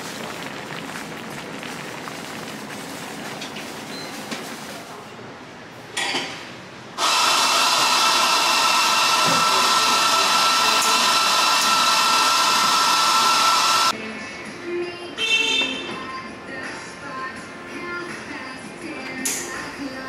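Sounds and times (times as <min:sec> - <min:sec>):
espresso steam wand hissing: 0:07.0 - 0:13.9.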